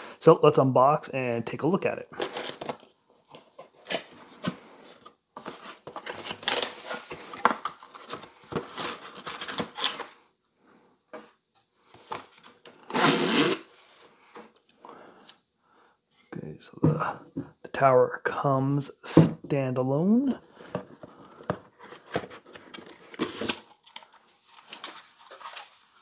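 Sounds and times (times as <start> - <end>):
cardboard packing rustling and scraping: 2.2 - 10.2, 20.5 - 26.0.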